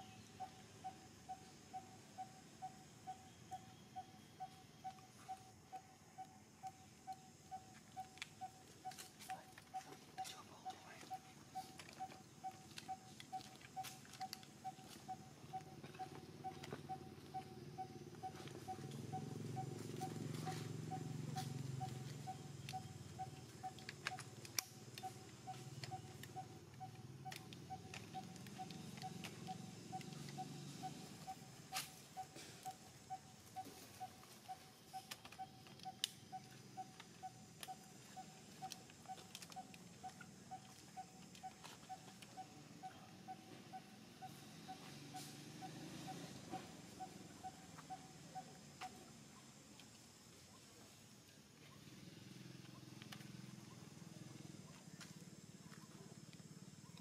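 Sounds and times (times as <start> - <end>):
faint clicks: 21.4 - 30.4, 34.0 - 42.4.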